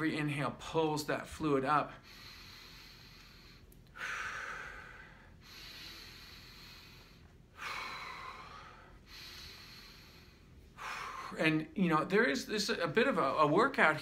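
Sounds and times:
man breathing slowly: 0:01.9 - 0:11.4.

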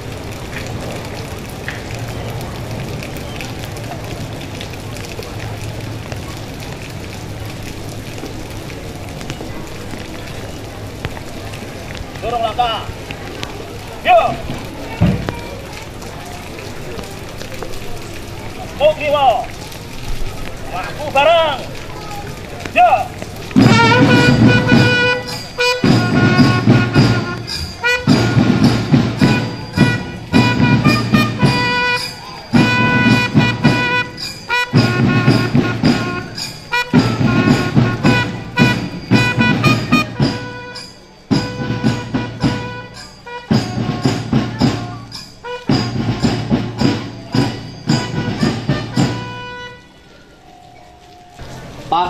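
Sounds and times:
marching band playing: 0:22.9 - 0:50.0.

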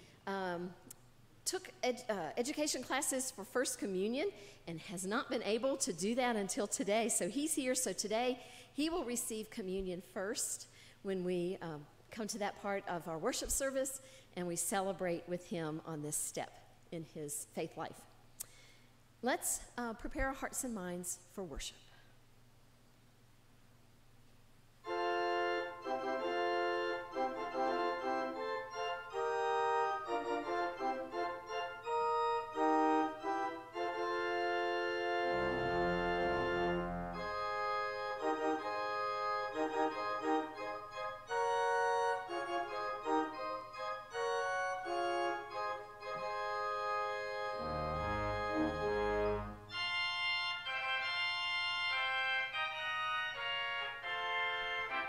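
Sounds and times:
deep organ bass pedal notes: 0:24.9 - 0:40.7, 0:44.3 - 0:52.2
church organ chords: 0:24.9 - 0:55.0.

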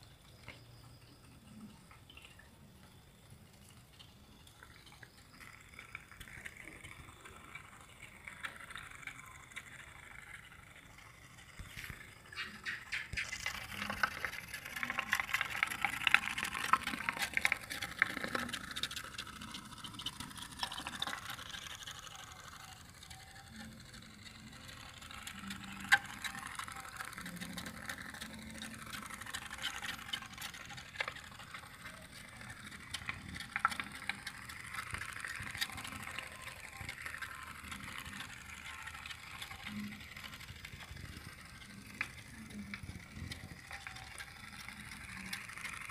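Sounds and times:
pop-pop boat engine putting: 0:00.0 - 0:45.9.

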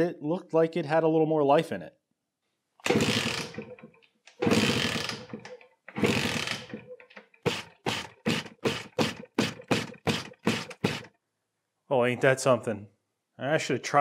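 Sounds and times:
two-stroke engine turning over: 0:02.8 - 0:11.1.

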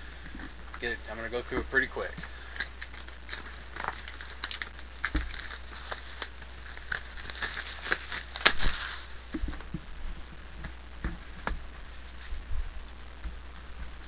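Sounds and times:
cardboard box crinkling: 0:02.0 - 0:10.3.

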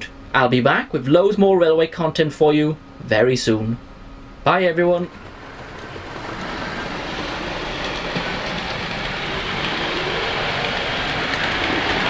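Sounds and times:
model train wheels rattling on rail: 0:05.0 - 0:12.0.

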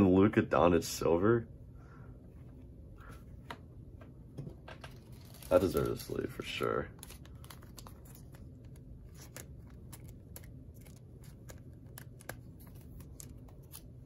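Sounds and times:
low room hum: 0:00.0 - 0:14.0
plastic sleeve rustling: 0:04.8 - 0:14.0.

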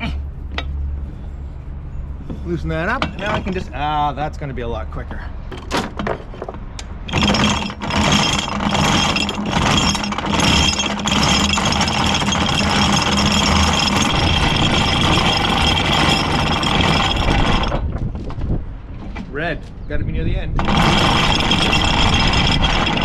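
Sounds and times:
anchor chain rattling out: 0:03.0 - 0:03.6, 0:07.0 - 0:18.1, 0:20.6 - 0:23.0.

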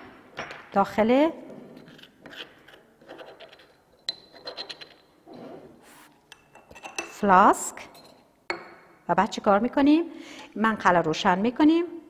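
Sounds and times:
spatula scraping porcelain mortar: 0:01.6 - 0:06.2.

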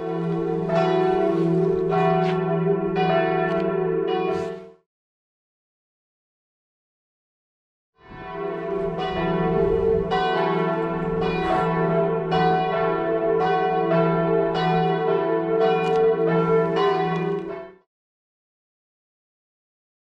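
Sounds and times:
church bells pealing: 0:00.0 - 0:04.8, 0:08.0 - 0:17.9.

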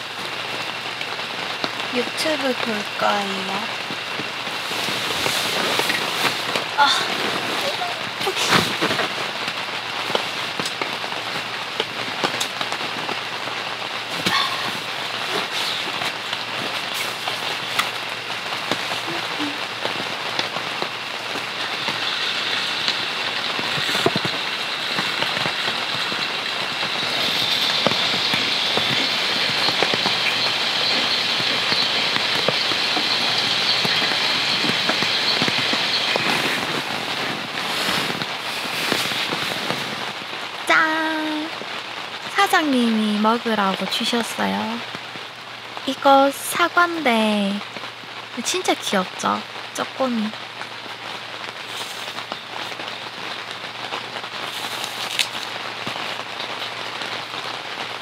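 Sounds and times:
rain pattering on shelter: 0:00.0 - 0:58.0
sharp water drips: 0:09.2 - 0:36.9
bright high hiss: 0:14.1 - 0:39.6.

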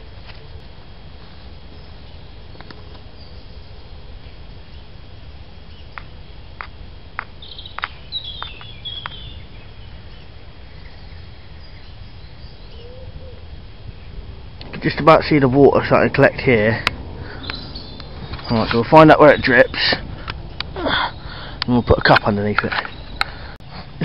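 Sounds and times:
low background rumble: 0:00.0 - 0:24.0
bird chirping: 0:01.7 - 0:14.2, 0:17.2 - 0:23.6.

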